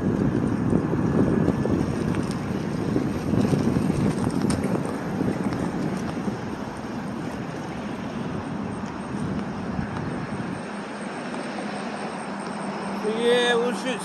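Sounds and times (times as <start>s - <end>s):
wind on microphone: 0.0s - 11.2s
tyre rolling over asphalt: 0.0s - 11.8s.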